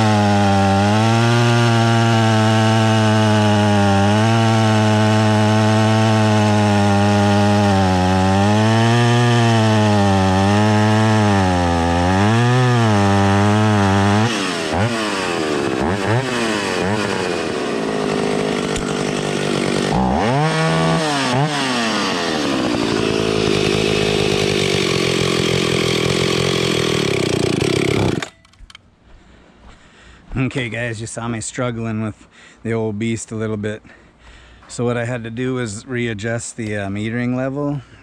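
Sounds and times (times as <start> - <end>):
chainsaw cutting wood: 0.0 - 28.8.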